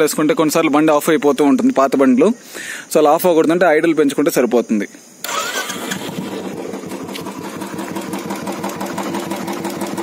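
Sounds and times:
motorcycle engine idling: 5.3 - 10.0.

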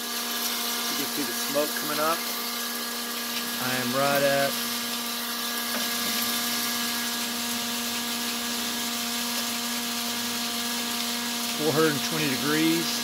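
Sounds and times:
heat gun air rush: 10.8 - 13.0.

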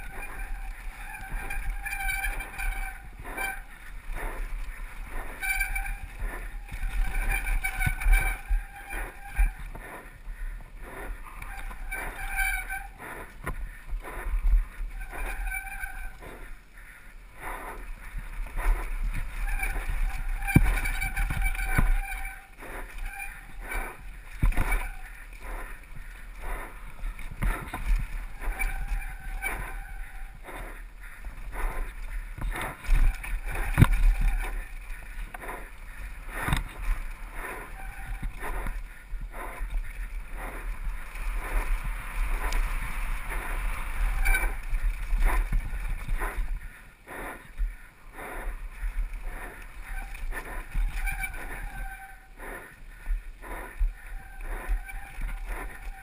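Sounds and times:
bike rattling over bumps: 0.0 - 56.0
tyres on loose dirt: 0.0 - 56.0
wind rumbling on microphone: 0.0 - 56.0.

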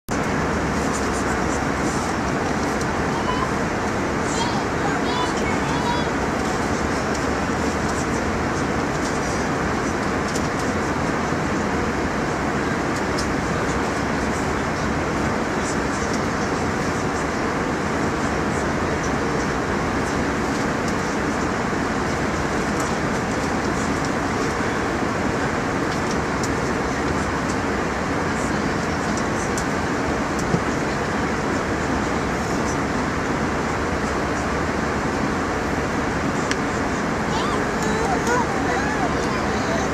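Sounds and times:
airliner cabin engine drone: 0.1 - 39.9.

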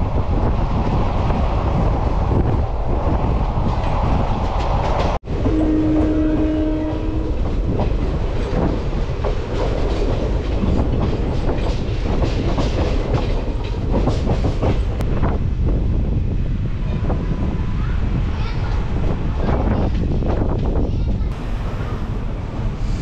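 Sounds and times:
train rumble: 0.0 - 23.0
train wheels clacking on rails: 3.5 - 15.0.

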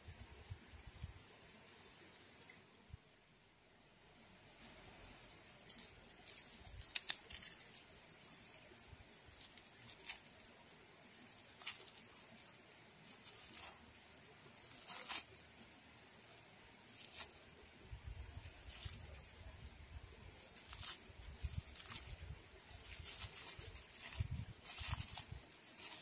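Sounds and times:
plastic wrapper crinkling: 5.5 - 15.8, 20.4 - 26.0.

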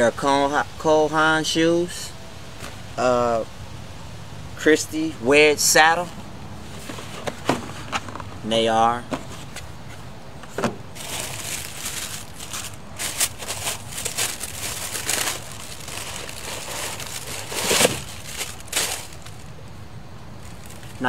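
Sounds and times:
wrapping paper rustling and crinkling: 11.0 - 19.6, 20.4 - 21.0.

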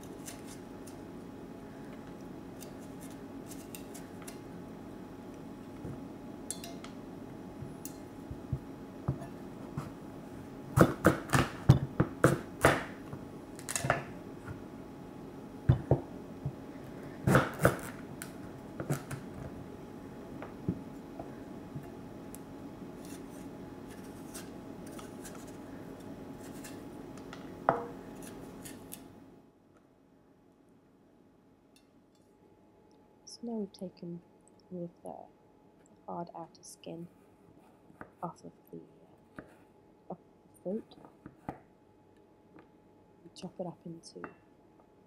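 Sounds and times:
knife cutting squash skin: 0.0 - 1.0, 2.6 - 4.4
faint steady hum: 0.0 - 45.0.

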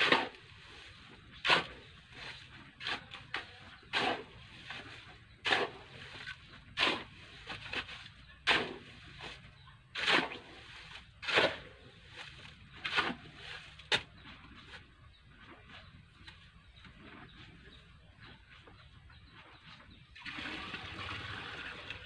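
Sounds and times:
shovel scraping into sand: 0.0 - 14.8.

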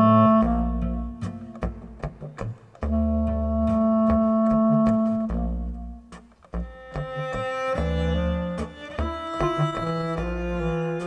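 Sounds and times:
chamber music with cello and clarinets: 0.0 - 11.0.

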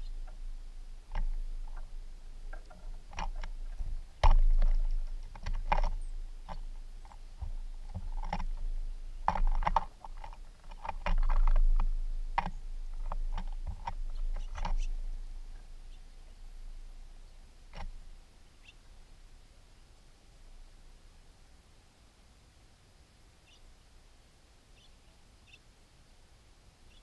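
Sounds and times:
wind rumble on microphone: 0.0 - 18.2
clicks and knocks at bird feeder: 1.1 - 15.0.

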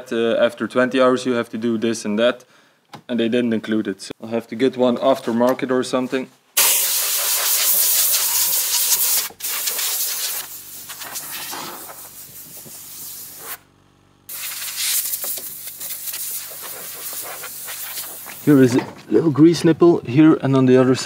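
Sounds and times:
air blow gun hissing: 6.6 - 13.6, 14.3 - 18.7.

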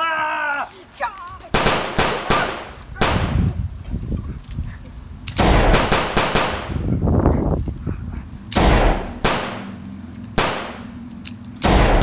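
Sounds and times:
rifle shots: 1.5 - 3.4, 5.4 - 6.8, 8.6 - 9.8, 10.4 - 10.9, 11.6 - 12.0
machine-gun burst: 5.4 - 6.7.

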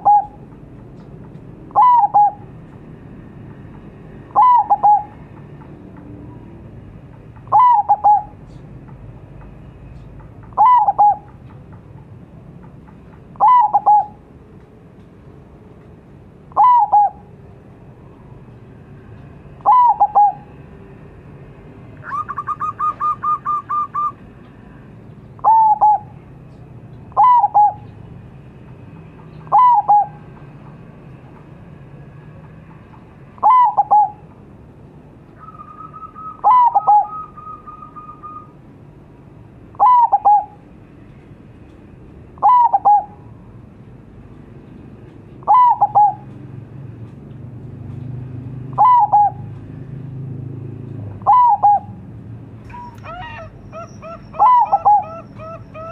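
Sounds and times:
dove calling: 0.0 - 0.6, 1.6 - 2.6, 4.3 - 5.3, 7.4 - 8.7, 9.9 - 11.6, 13.2 - 14.3, 16.5 - 17.3, 19.6 - 20.6, 22.0 - 24.2, 25.3 - 26.2, 27.1 - 28.0, 29.2 - 30.4, 33.4 - 34.3, 35.4 - 38.6, 39.7 - 40.6, 42.4 - 43.3, 45.4 - 46.4, 48.7 - 49.6, 51.2 - 52.0, 52.7 - 55.9.

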